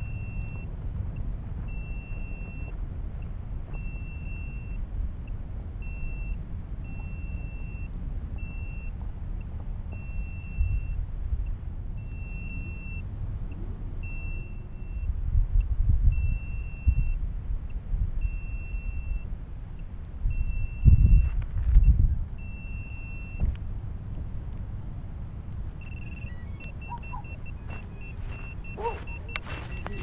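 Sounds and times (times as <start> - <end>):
wind rumble on microphone: 0.0 - 30.0
drone beeper high beeps: 25.8 - 30.0.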